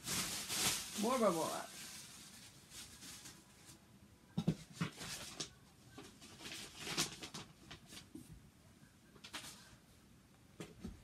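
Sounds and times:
packing paper rustling: 0.0 - 3.8, 4.8 - 8.1.

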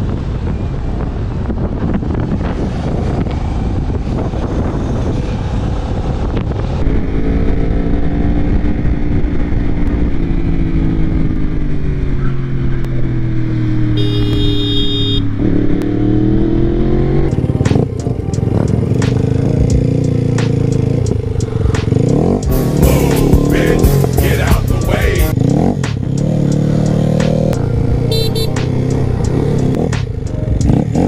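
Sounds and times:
wind buffeting microphone: 0.0 - 10.5
motorcycle engine running: 6.8 - 31.0
high-pitched tone: 14.0 - 15.3, 22.5 - 25.4, 27.6 - 29.5.

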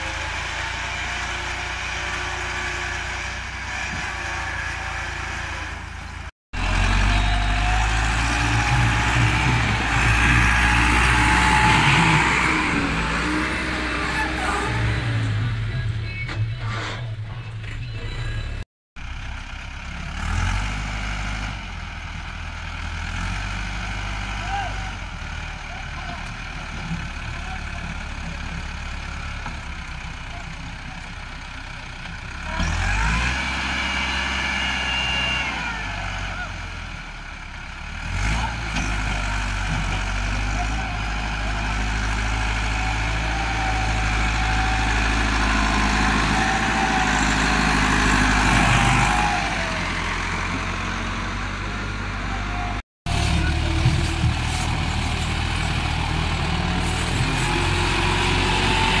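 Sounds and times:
tractor engine labouring: 0.0 - 59.0
another tractor engine running: 14.7 - 59.0.

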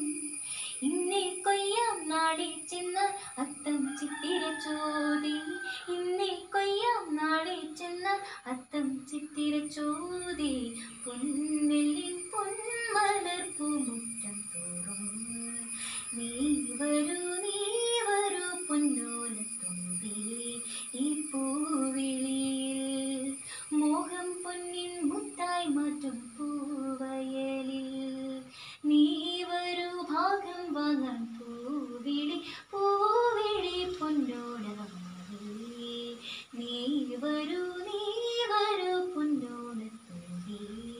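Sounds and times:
girl singing: 0.0 - 40.9.

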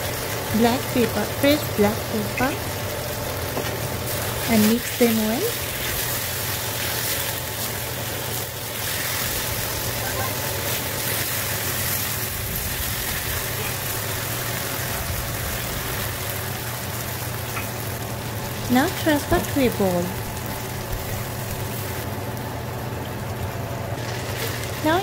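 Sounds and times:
steady low hum: 0.0 - 24.2
chicken sizzling in a wok: 0.0 - 25.0.

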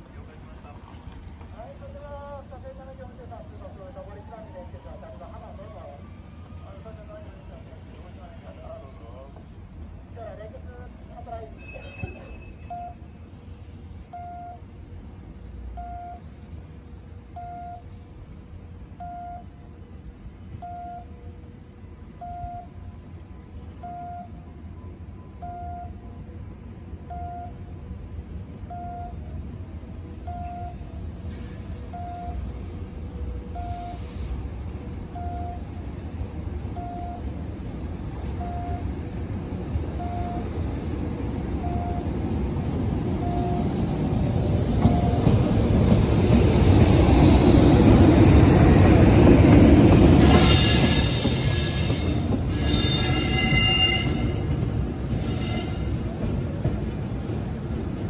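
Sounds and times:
electric locomotive rumble: 0.0 - 58.0
short electronic beep: 11.6 - 13.0.

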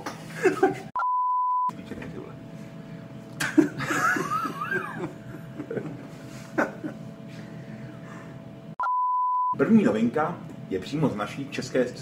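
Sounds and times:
men stifling laughter: 0.2 - 0.9, 3.4 - 7.1
steady beep tone: 1.0 - 1.7, 8.8 - 9.6.

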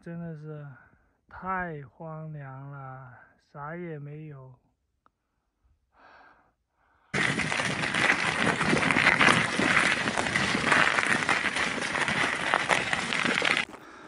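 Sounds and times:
bicycle tyres crunching over gravel: 7.2 - 13.9.

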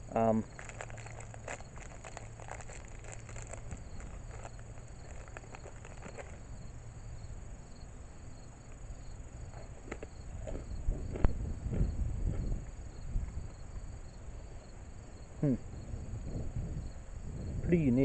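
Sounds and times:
insects trilling: 0.0 - 18.0
cracker crunching while chewed: 0.4 - 6.7, 9.4 - 12.6.

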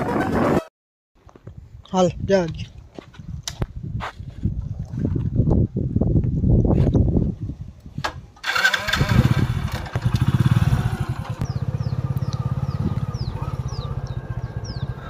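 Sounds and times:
motorcycle engine puttering: 8.4 - 15.0
motorcycle engine starting: 8.4 - 15.0.

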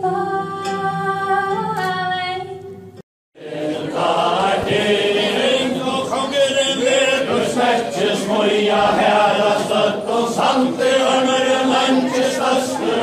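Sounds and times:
crowd singing in unison: 3.4 - 13.0.

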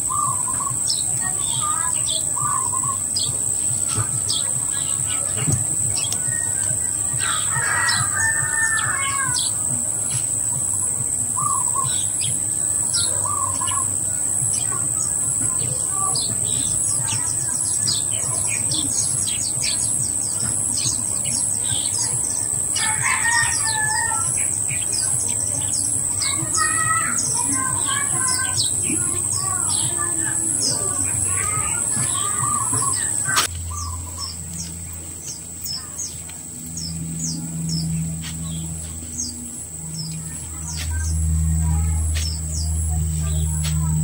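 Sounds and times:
high-pitched insect drone: 0.0 - 44.0
small birds chirping: 0.0 - 44.0
roosters crowing: 3.8 - 18.6, 19.6 - 33.5.

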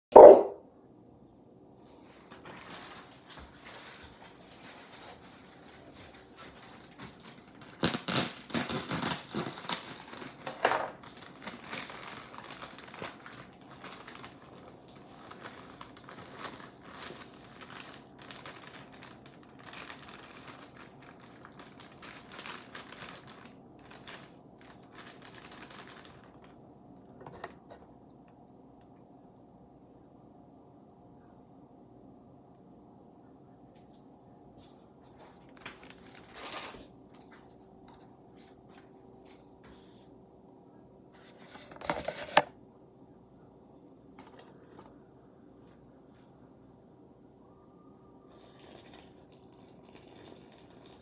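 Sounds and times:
plastic bag crinkling: 2.2 - 27.2, 35.0 - 37.6.

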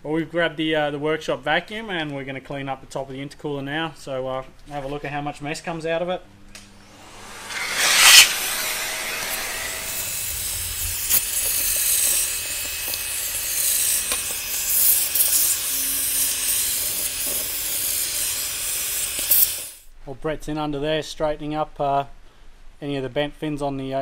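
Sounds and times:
vacuum cleaner running: 6.8 - 19.8.

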